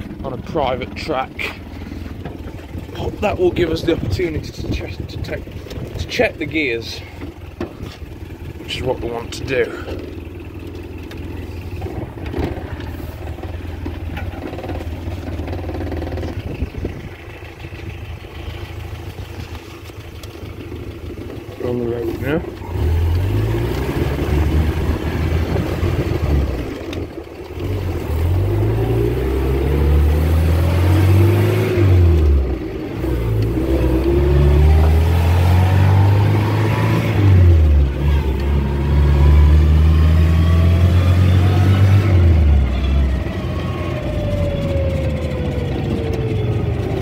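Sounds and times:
car engine accelerating through gears: 21.5 - 47.0.

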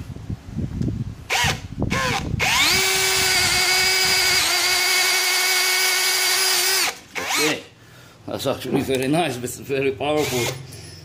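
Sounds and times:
drill motor whining: 1.3 - 7.7, 10.2 - 10.8.

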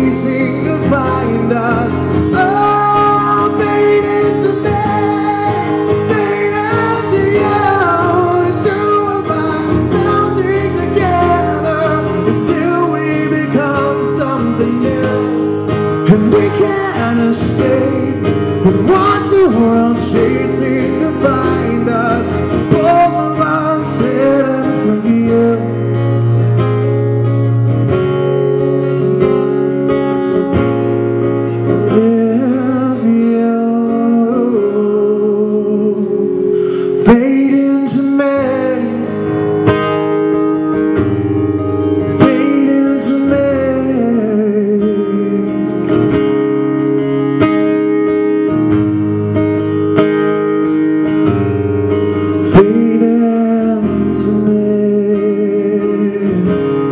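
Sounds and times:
man singing: 0.0 - 26.3, 31.7 - 39.5, 41.9 - 46.4, 52.3 - 56.9
acoustic guitar strumming: 0.0 - 56.9.

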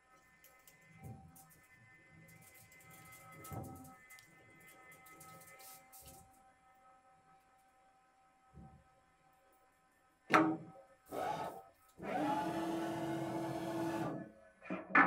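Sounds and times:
lathe drill cutting: 11.1 - 14.2.

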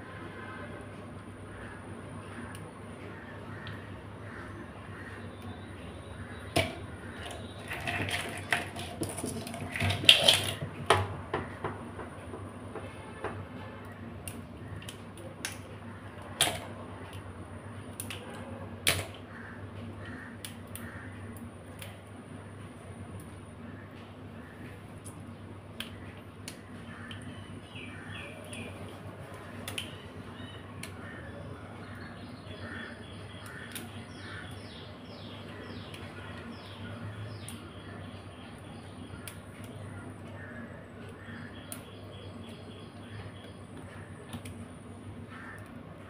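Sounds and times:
crab shells cracking: 6.5 - 11.3, 14.2 - 17.3, 28.4 - 31.2.

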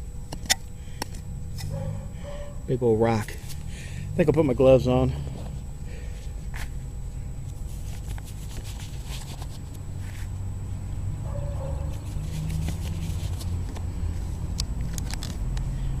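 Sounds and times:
steady low rumble: 0.0 - 16.0
work gloves rustling: 7.4 - 10.4, 11.7 - 15.4.

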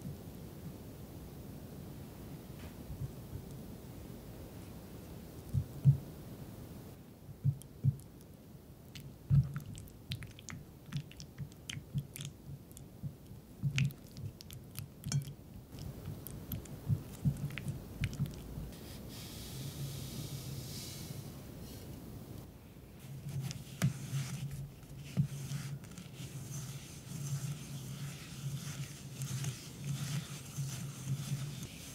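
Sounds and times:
spatula smearing butter in bowl: 9.3 - 19.7, 23.0 - 31.9
sugar pouring hiss: 25.4 - 31.9.

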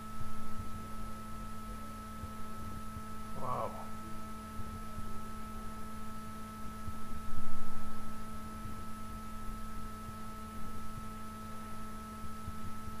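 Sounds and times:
electrical hum: 0.0 - 13.0.

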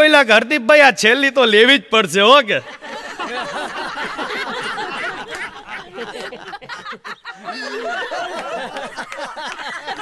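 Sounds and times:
audience laughing: 2.6 - 10.0.

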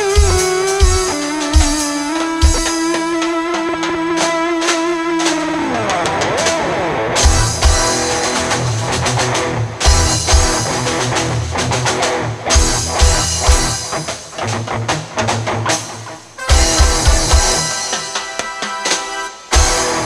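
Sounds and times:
bass: 0.0 - 1.8, 7.2 - 17.7, 19.5 - 20.0
drum kit with heavy kick: 0.0 - 6.6, 7.2 - 20.0
guitar: 0.0 - 20.0.

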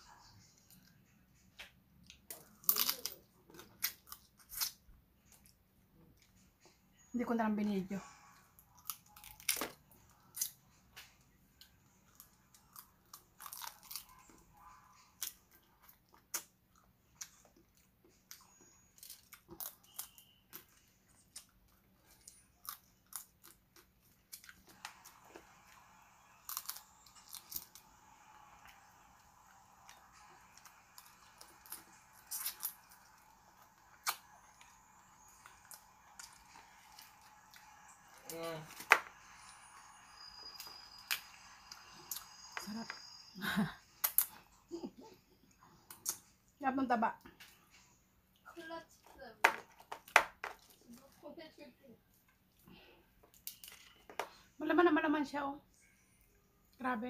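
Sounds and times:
crab shell cracking: 2.3 - 4.8, 8.8 - 10.5, 12.7 - 14.1.

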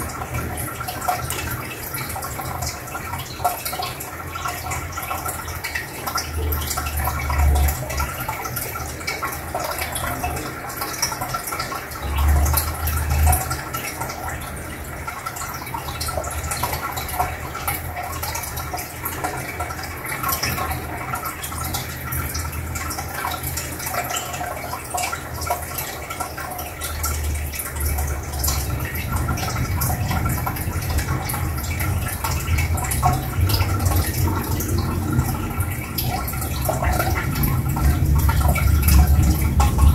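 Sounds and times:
aquarium filter bubbling: 0.0 - 39.9
water gurgling and dripping: 0.0 - 39.9.

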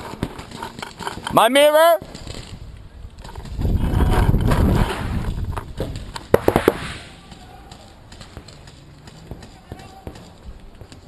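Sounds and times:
handling noise rumble: 3.5 - 7.5.

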